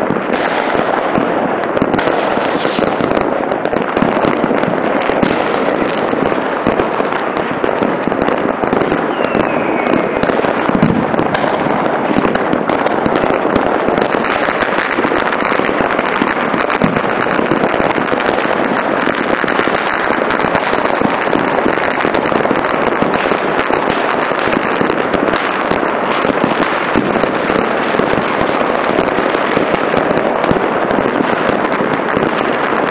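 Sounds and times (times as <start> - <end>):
fireworks crackling and banging: 0.0 - 32.9
falling firework whistle: 6.2 - 16.9.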